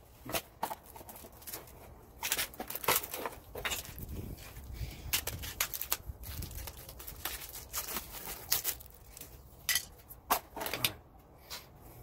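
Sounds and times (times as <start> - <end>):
plastic packaging crinkling: 0.8 - 9.5.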